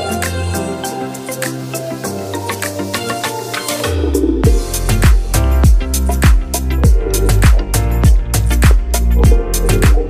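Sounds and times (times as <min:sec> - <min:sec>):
bass line: 0:04.0 - 0:10.0
kick drum thumps: 0:04.4 - 0:10.0.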